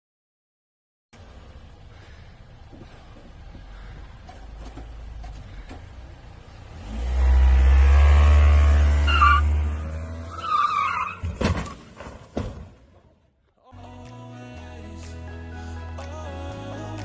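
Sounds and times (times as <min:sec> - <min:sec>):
car engine revving: 0:06.0 - 0:11.3.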